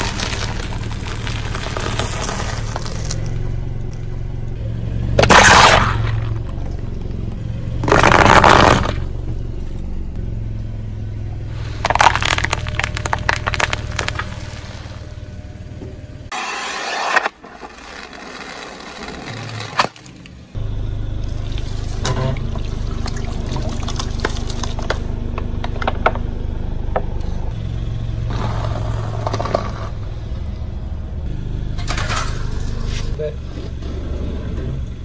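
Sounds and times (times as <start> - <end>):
tyre crushing objects: 0.0 - 3.4, 5.2 - 7.0, 7.8 - 9.1, 11.6 - 15.1
sharp cracks and snaps: 0.0 - 4.0, 11.8 - 14.9
car engine humming: 0.0 - 35.0.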